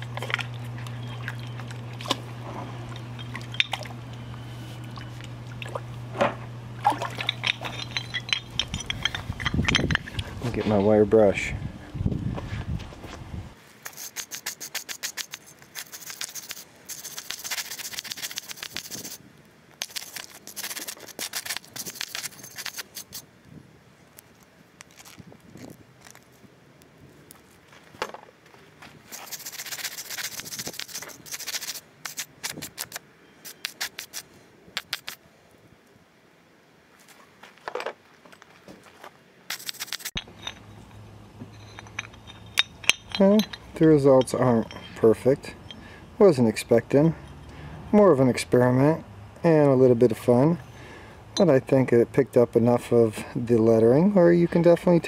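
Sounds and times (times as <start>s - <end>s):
metal bars clicking and knocking: 6.9s - 10.3s, 39.6s - 45.8s
scratchy scrape: 13.8s - 19.2s, 19.8s - 23.2s, 29.1s - 35.2s, 39.5s - 40.3s
wire brush scrubbing metal: 13.8s - 19.2s, 19.8s - 23.2s, 29.1s - 35.2s, 39.5s - 45.8s.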